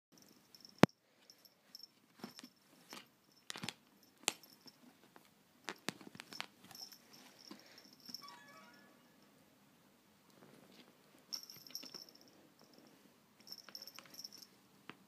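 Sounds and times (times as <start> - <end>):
faint high whine: 6.7 - 9.9.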